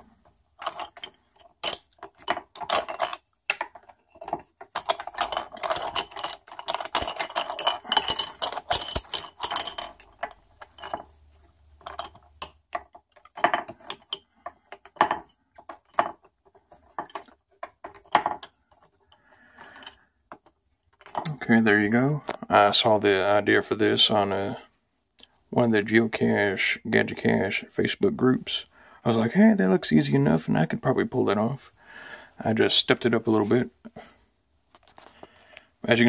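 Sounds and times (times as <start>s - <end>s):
wooden sticks clattering and knocking: 0.0s - 22.5s, 33.4s - 35.4s.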